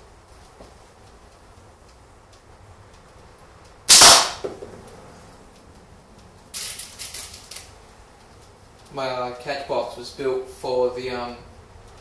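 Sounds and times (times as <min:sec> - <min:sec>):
slingshot crack and ball impact: 0:03.9 - 0:04.8.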